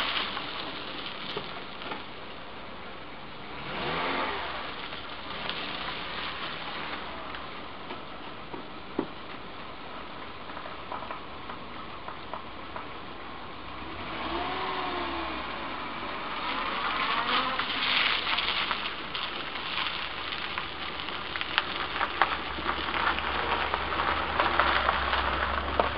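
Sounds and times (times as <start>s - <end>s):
tyres crunching over gravel: 0.0s - 2.5s, 3.5s - 13.0s, 13.8s - 25.9s
car engine revving: 3.4s - 7.3s, 13.7s - 19.0s.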